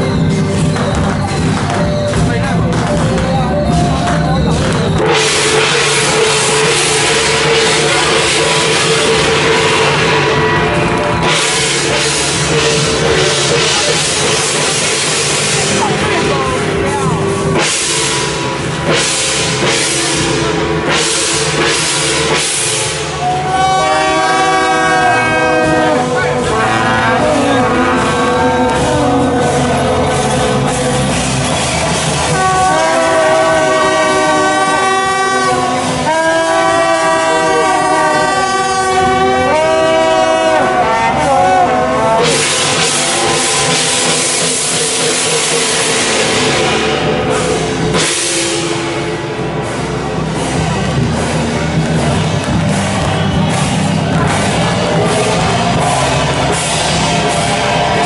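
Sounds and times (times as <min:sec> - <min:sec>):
crashing cymbals and drums: 0:00.0 - 0:58.0
reedy wind instrument: 0:00.0 - 0:58.0.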